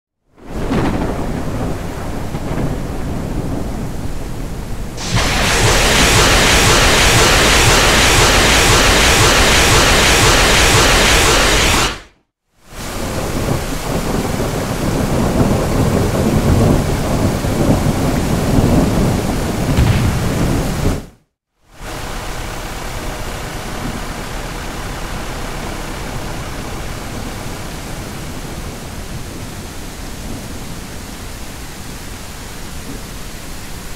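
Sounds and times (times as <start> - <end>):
rain: 0.3 - 12.0, 12.6 - 33.9
rocket launch roar: 5.0 - 12.2, 19.7 - 21.1.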